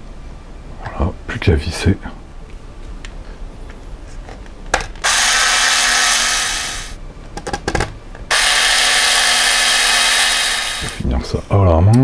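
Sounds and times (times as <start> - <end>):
electric screwdriver running: 5.0 - 7.0, 8.3 - 11.0.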